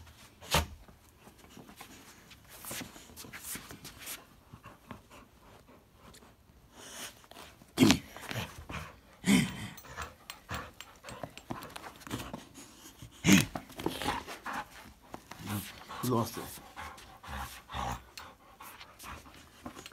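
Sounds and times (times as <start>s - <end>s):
puppy panting: 8.1s - 19.9s.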